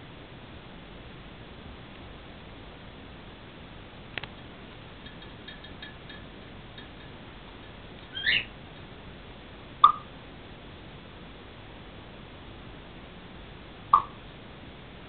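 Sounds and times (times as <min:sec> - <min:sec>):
parrot sharp call: 0:08.1 - 0:08.5
parrot whistle: 0:08.1 - 0:08.5.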